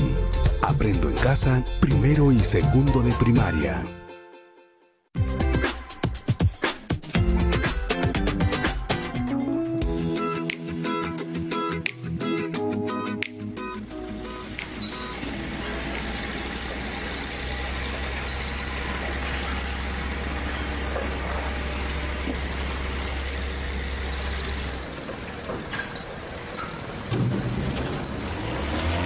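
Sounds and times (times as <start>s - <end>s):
engine-driven machinery running: 13.8s - 29.0s.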